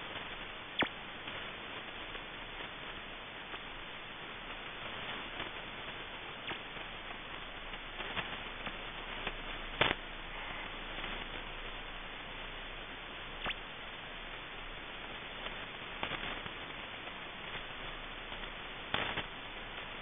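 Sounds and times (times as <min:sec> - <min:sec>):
shortwave receiver hiss: 0:00.0 - 0:20.0
radio clicks and chirps: 0:00.2 - 0:01.4, 0:06.4 - 0:10.1, 0:13.4 - 0:13.7, 0:15.4 - 0:17.7, 0:18.3 - 0:19.9.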